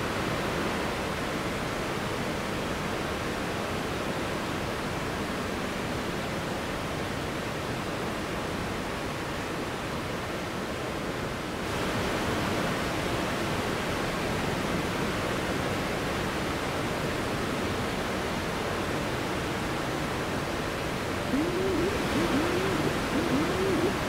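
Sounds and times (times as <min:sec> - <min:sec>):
wavering electronic tone: 0:21.3 - 0:24.0.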